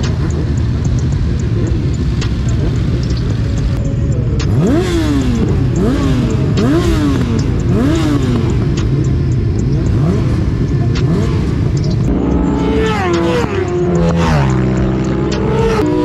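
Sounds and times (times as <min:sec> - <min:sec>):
racing motorcycles accelerating: 0:00.0 - 0:16.0.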